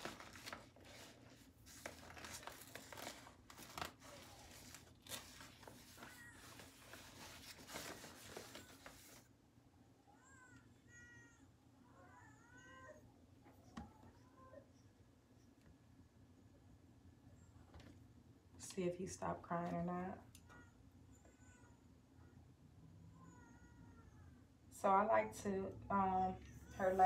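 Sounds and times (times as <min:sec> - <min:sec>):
child crying in the distance: 0:10.1 - 0:14.8, 0:20.4 - 0:24.6.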